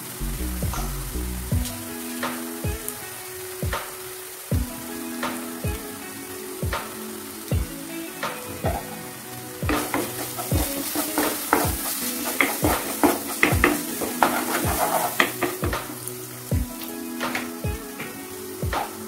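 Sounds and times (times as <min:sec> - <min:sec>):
masala sizzling in oil: 0:00.0 - 0:19.0
water pouring: 0:07.5 - 0:19.0
spatula scraping a pan: 0:09.7 - 0:16.1.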